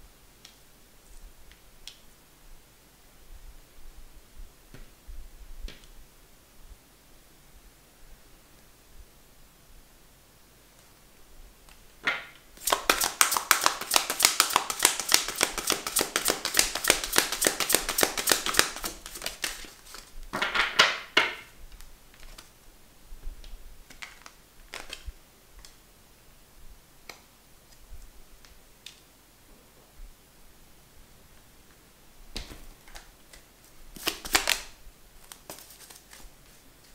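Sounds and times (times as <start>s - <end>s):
cards shuffling: 12.6s - 20.2s, 22.2s - 22.5s, 32.5s - 36.9s.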